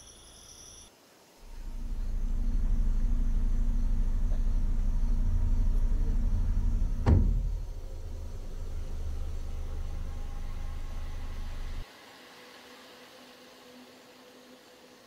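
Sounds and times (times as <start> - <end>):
car engine idling: 1.4 - 11.8
car door shutting: 1.5 - 11.8.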